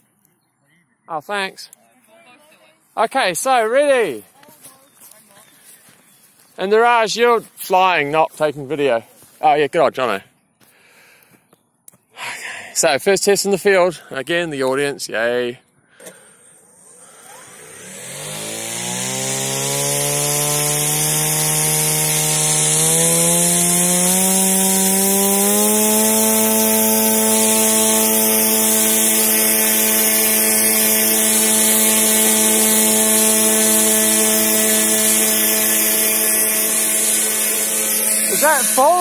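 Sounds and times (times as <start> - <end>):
drone motor whine: 16.6 - 39.0.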